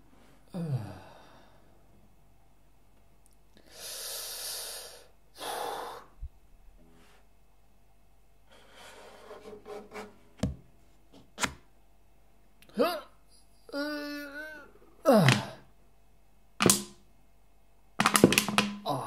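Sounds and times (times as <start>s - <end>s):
person sighing: 0.4s - 1.7s, 3.6s - 6.3s, 12.6s - 15.7s.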